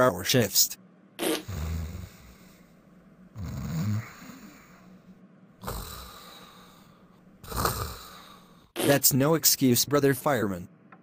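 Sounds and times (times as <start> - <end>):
man snoring: 1.4 - 2.6, 3.3 - 4.9, 5.6 - 8.7.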